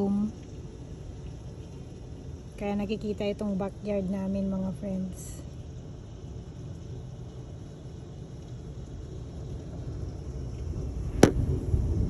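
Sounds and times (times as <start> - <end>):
heavy rain: 0.0 - 12.0
thunder rumble: 0.0 - 12.0.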